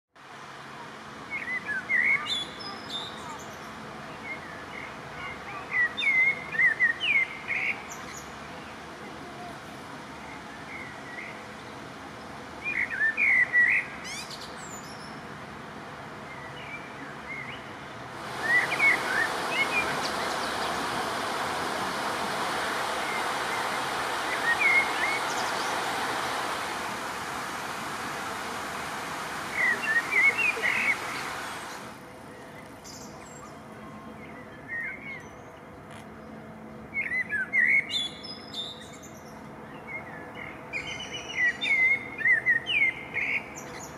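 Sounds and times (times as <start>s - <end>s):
small songbirds chirping: 16.2s - 36.0s
steady hiss: 18.0s - 33.1s.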